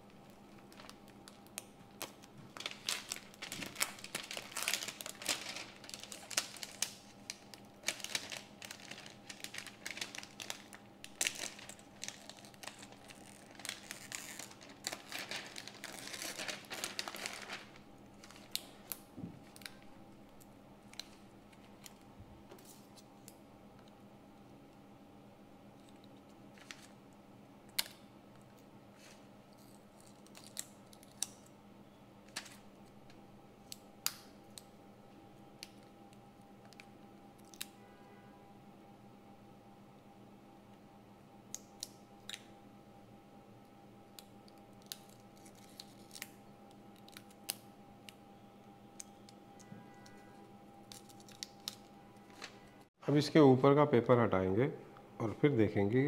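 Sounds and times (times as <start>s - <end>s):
plastic film crinkling: 0.0s - 20.0s, 44.5s - 47.6s, 50.8s - 52.7s.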